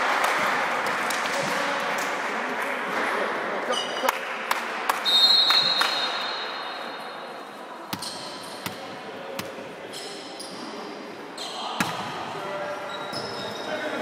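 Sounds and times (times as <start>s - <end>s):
referee's whistle blast: 5.0s - 6.4s
volleyball hits: 11.8s - 12.2s.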